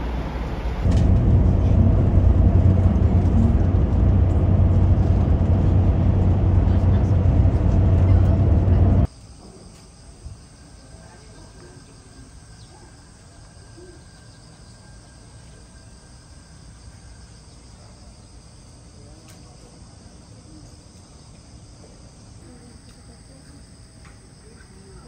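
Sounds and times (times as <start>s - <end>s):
low outdoor rumble: 0.0s - 9.1s.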